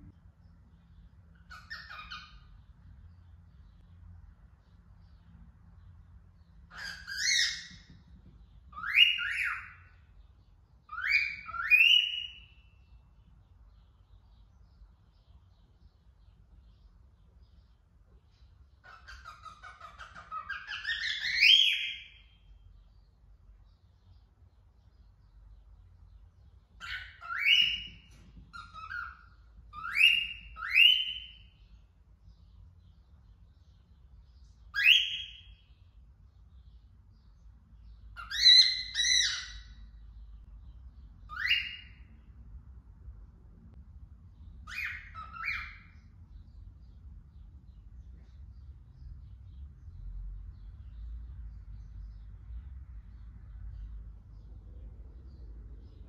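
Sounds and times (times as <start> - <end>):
cockatiel whistled calls: 1.4 - 2.5, 6.7 - 7.9, 8.7 - 9.9, 10.9 - 12.6, 18.8 - 22.2, 26.8 - 31.6, 34.7 - 35.6, 38.2 - 39.8, 41.3 - 42.1, 44.6 - 46.0.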